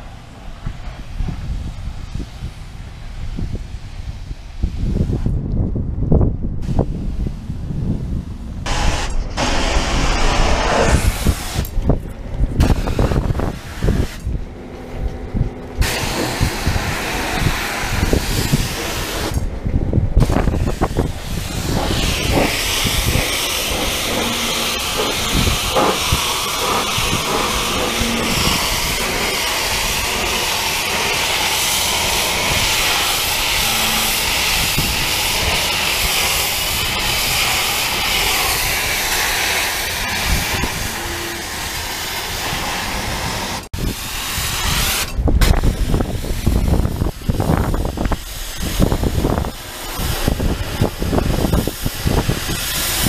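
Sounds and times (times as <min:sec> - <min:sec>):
pressure washer spraying hull: 0:08.7 - 0:12.0, 0:12.6 - 0:53.0.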